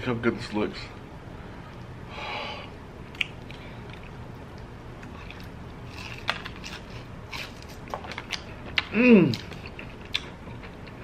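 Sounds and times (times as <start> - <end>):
breathy hiss: 2.1 - 2.8.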